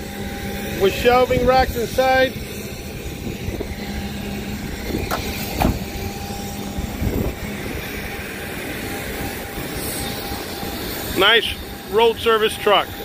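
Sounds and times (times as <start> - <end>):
outdoor background rumble: 0.0 - 13.0
sharp knocks: 5.1 - 5.8
dull thud: 5.1 - 5.9.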